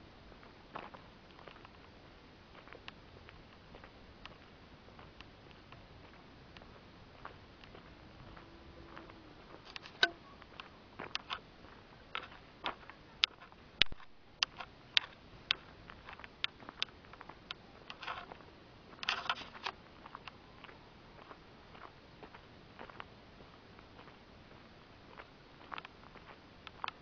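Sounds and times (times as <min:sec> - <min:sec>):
handheld camera jostling: 0:09.6 - 0:10.2, 0:17.9 - 0:18.4, 0:19.0 - 0:19.8.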